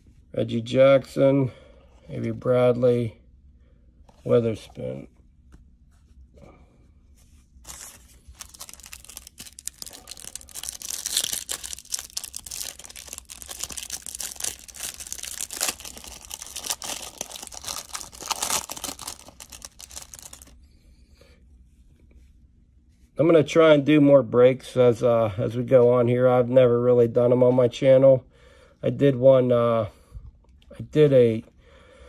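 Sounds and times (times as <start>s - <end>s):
plastic wrapper tearing and crinkling: 7.6s - 20.6s.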